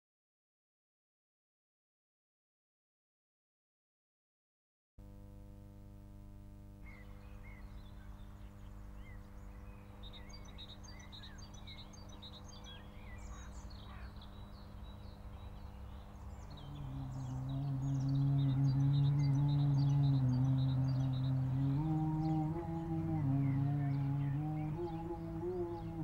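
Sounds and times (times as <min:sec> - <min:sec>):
low steady hum: 0:05.0 - 0:26.0
small birds chirping: 0:06.8 - 0:26.0.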